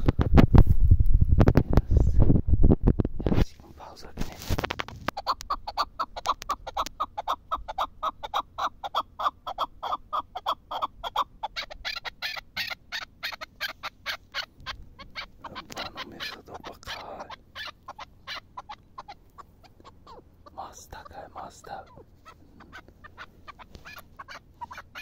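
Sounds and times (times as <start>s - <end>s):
partridge calling: 5.0s - 25.0s.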